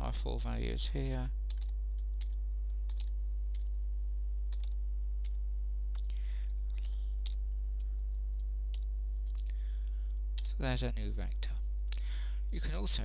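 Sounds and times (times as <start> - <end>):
low electrical hum: 0.0 - 13.0
keyboard keys clicking: 1.5 - 3.7, 4.5 - 5.4.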